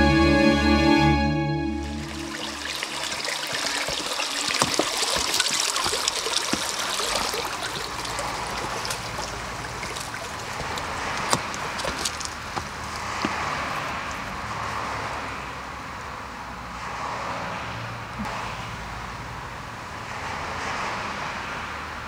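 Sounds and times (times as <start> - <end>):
water trickling over rocks: 1.8 - 15.2.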